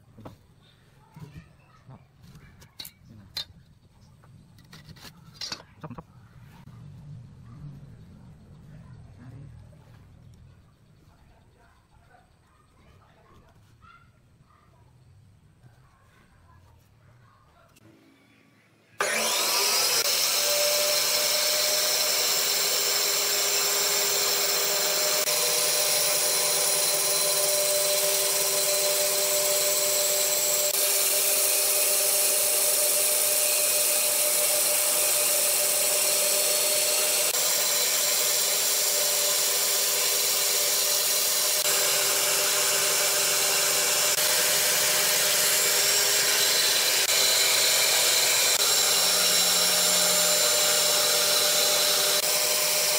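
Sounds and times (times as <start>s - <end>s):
band saw cutting wood: 19.0s - 52.9s.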